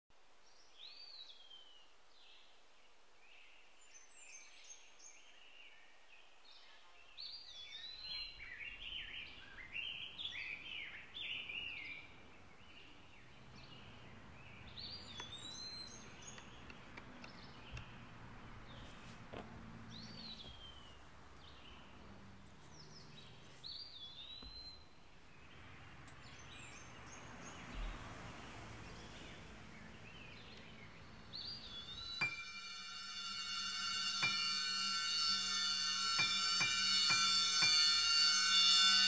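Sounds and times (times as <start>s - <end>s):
birds chirping: 0.4s - 39.0s
rising and falling whistled bird call: 3.3s - 18.0s, 19.9s - 21.9s, 22.7s - 25.6s, 28.8s - 39.0s.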